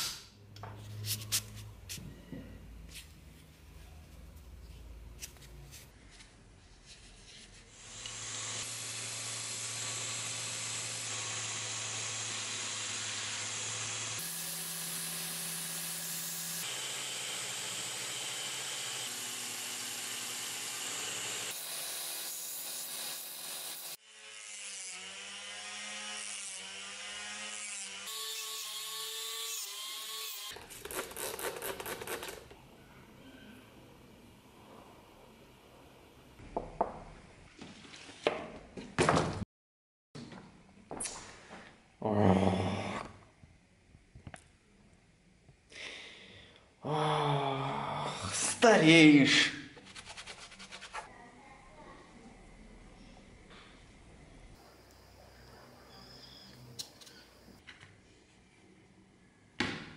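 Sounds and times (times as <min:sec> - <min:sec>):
belt grinder grinding metal: 0:07.8 - 0:24.0.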